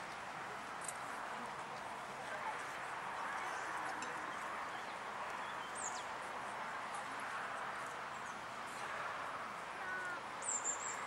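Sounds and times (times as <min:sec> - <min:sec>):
bird chirp: 0:10.4 - 0:11.0.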